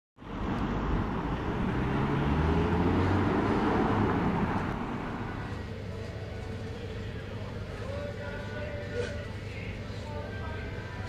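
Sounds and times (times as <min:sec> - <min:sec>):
low vehicle engine hum: 0:00.2 - 0:11.0
road noise rush: 0:00.2 - 0:11.0.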